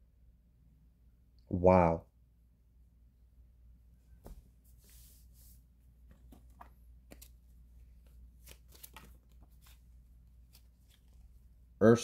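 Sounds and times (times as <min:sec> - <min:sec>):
cards shuffling and clicking: 0:06.0 - 0:11.5.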